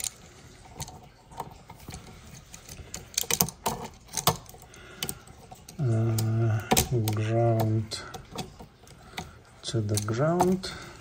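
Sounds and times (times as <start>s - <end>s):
wires and connectors clicking: 0.0s - 11.0s.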